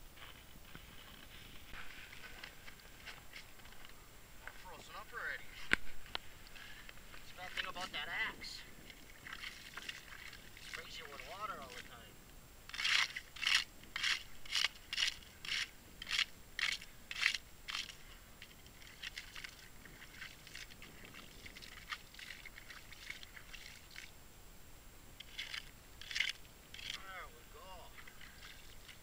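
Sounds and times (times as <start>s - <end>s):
ice crackling: 0.4s - 24.1s, 25.2s - 29.0s
ice skimmer scraping slush: 9.4s - 11.9s.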